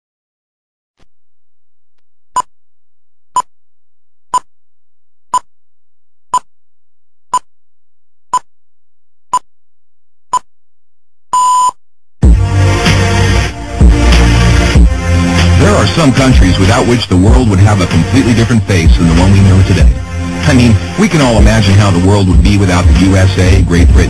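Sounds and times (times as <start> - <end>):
film leader countdown beeps: 11.4 - 11.8.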